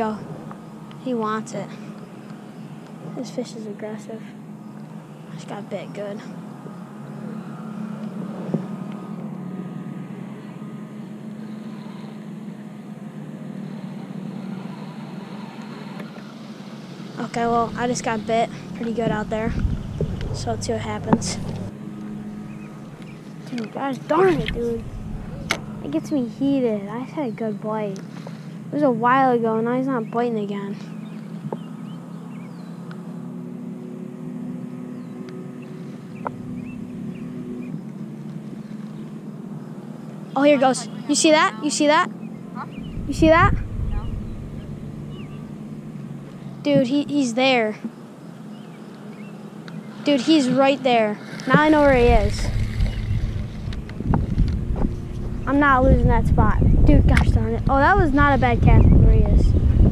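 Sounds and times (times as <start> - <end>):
low mechanical drone: 0.0 - 59.9
faint bird chirps: 38.6 - 46.6
fishing reel cranking whir: 51.2 - 55.2.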